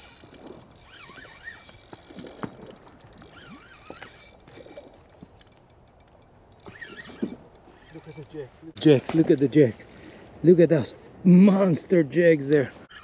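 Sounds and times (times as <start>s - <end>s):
fishing reel clicking: 0.0s - 8.4s.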